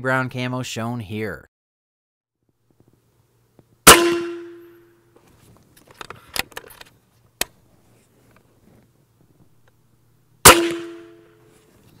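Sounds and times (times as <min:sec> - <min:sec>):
air rifle shot: 0:03.9 - 0:04.7, 0:10.5 - 0:11.2.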